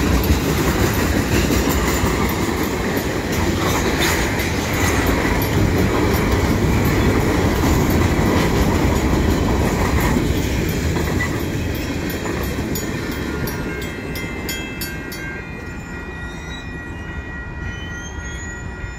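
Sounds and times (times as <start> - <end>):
wheels clicking over rail joints: 0.0 - 15.2
train wheels rumbling on rail: 0.0 - 18.3
thin steady high tone: 13.1 - 18.9.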